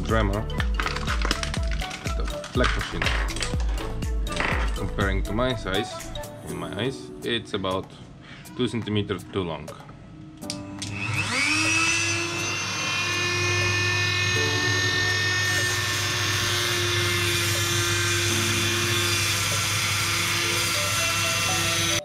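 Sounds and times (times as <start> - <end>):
cut-off wheel grinding metal: 10.6 - 22.0
rotary tool whining: 10.6 - 22.0.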